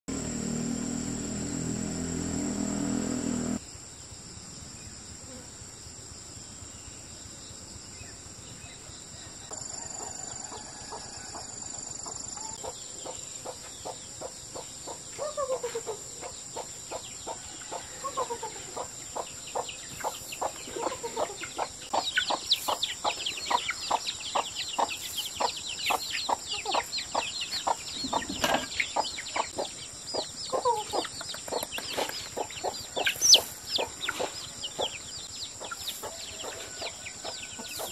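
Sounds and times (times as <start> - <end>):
hens clucking: 18.0 - 29.8, 30.5 - 35.0
chicks peeping: 18.1 - 37.9.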